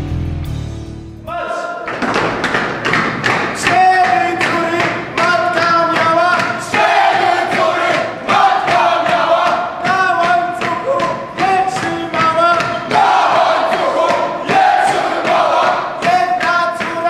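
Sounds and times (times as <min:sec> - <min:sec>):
group chanting in unison: 0:01.3 - 0:01.9, 0:06.4 - 0:10.8, 0:12.6 - 0:16.9.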